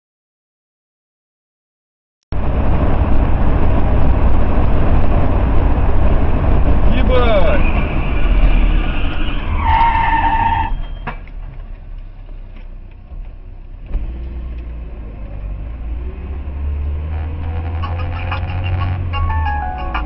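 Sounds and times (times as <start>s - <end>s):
road and engine rumble in car: 2.3s - 20.0s
high squeal: 7.4s - 11.2s.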